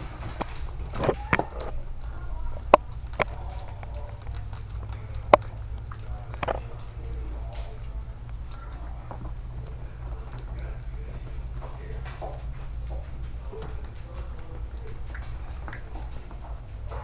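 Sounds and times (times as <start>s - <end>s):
puppies suckling: 0.0s - 17.0s.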